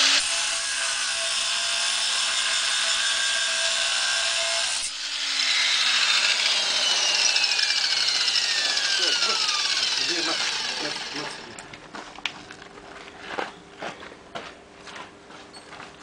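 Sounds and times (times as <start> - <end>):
angle grinder cutting metal: 0.0 - 11.7.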